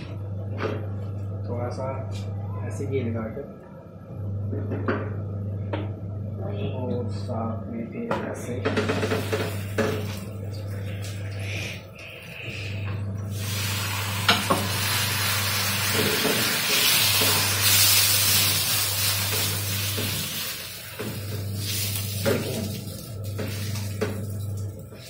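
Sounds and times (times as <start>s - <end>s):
ghee sizzling on a hot pan: 13.3s - 22.3s.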